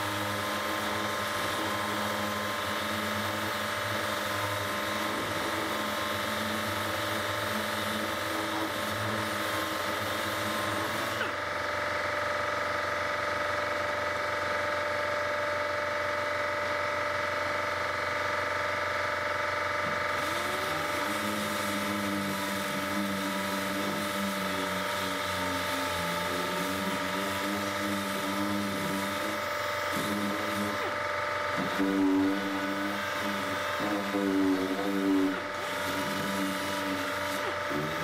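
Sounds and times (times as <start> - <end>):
air sander sanding filler: 0.0 - 11.4, 19.3 - 38.0
steady machine hum: 0.0 - 38.0.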